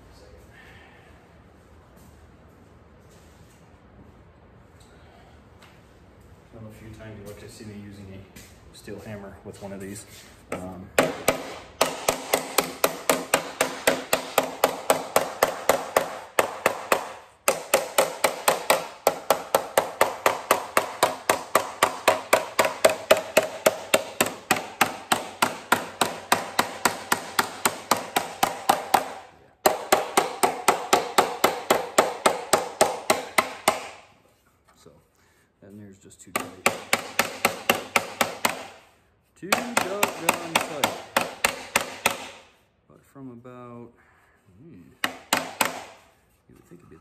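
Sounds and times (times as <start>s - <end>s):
hammer tapping metal sheet: 39.4s - 42.4s.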